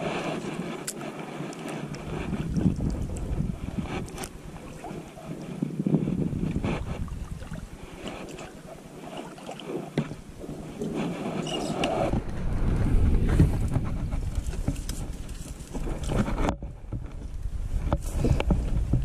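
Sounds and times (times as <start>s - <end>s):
hull scraping branches: 0.0s - 19.0s
low rumbling on microphone: 1.8s - 8.9s, 10.0s - 19.0s.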